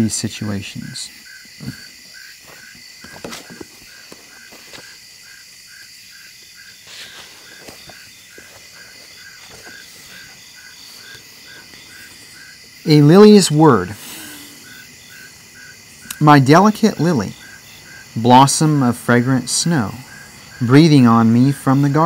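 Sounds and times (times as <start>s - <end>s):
crickets trilling: 0.0s - 22.0s
low pulsing insect chirp: 0.0s - 22.0s
faint knocks and rustles: 1.6s - 5.0s, 6.8s - 10.4s.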